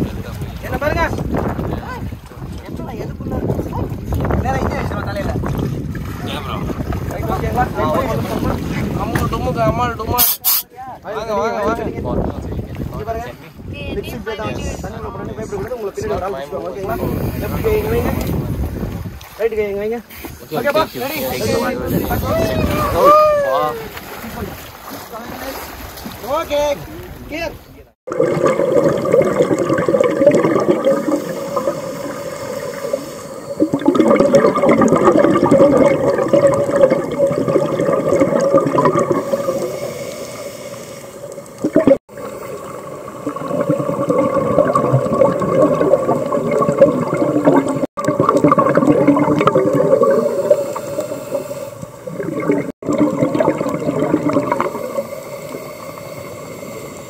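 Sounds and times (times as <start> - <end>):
underwater bubbles gurgling: 28.1 - 57.0.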